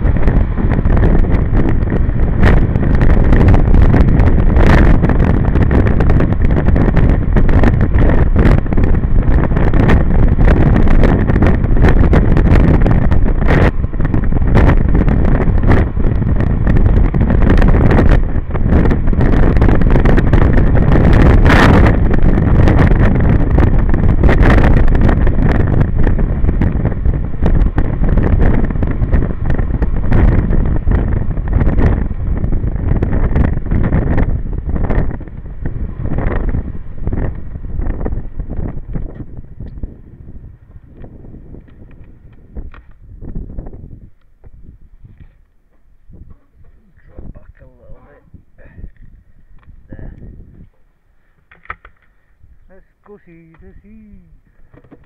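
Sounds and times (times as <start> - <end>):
wind buffeting microphone: 0.0 - 55.0
sharp knocks on microphone: 54.7 - 55.0.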